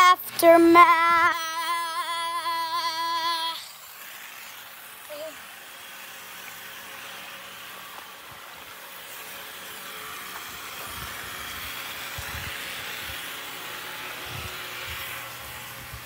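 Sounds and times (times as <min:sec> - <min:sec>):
rain on a patio: 0:03.6 - 0:05.8.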